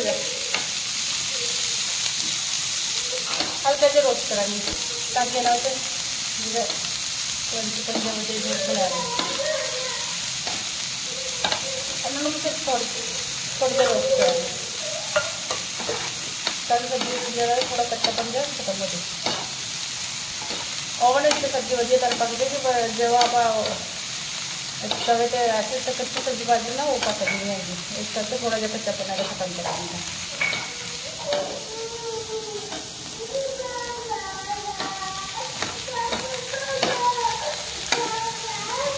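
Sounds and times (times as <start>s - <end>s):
vegetables sizzling in pan: 0.0s - 38.9s
metal spoon scraping pan: 13.7s - 18.6s, 24.9s - 25.3s, 25.9s - 27.6s, 28.4s - 31.7s.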